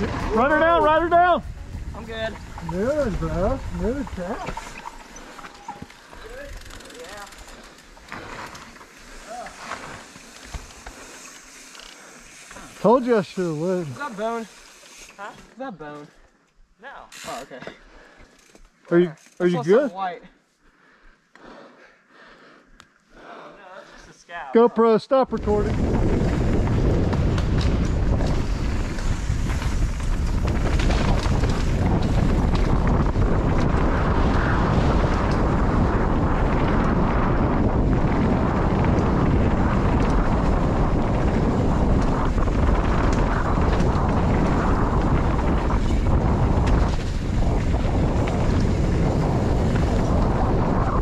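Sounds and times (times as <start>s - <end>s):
wind buffeting microphone: 0.0s - 6.7s, 25.3s - 51.0s
tyres humming on dirt: 0.0s - 15.2s
bike knocks and rattles: 25.7s - 34.3s.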